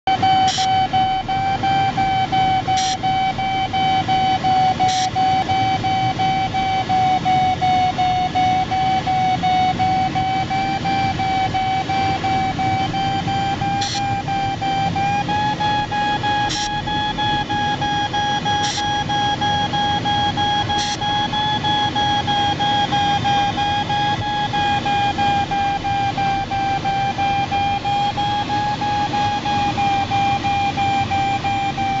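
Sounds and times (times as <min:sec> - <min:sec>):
pulsing high electronic tone: 0:00.1 - 0:32.0.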